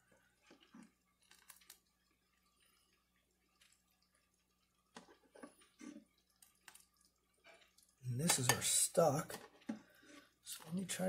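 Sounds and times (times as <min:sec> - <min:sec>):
water dripping: 0:00.0 - 0:11.0
spoon tapping pot: 0:08.3 - 0:08.8.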